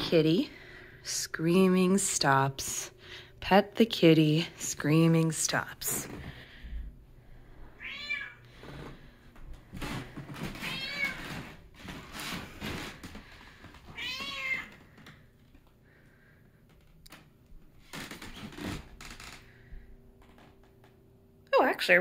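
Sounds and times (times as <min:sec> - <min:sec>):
cat meowing: 0:07.8 - 0:08.4, 0:10.6 - 0:11.2, 0:14.0 - 0:14.7.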